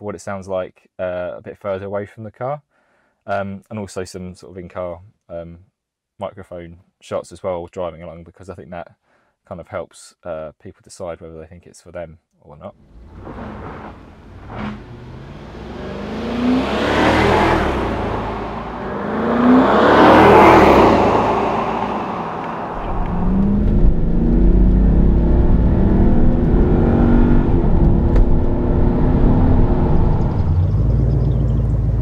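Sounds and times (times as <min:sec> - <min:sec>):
car engine accelerating past: 0:12.9 - 0:32.0
engine drone inside car: 0:13.0 - 0:32.0.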